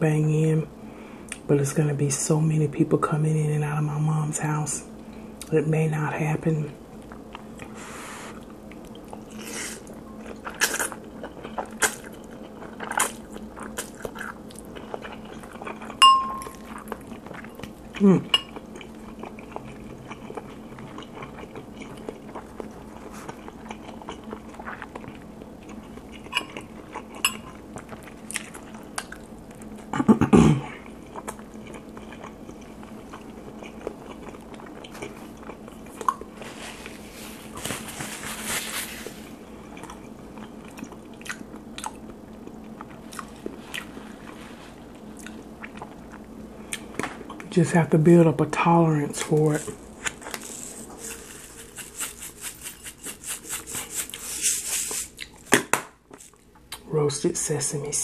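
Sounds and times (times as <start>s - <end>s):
close-up chewing: 7.0s - 30.1s, 30.7s - 47.5s, 49.2s - 55.5s.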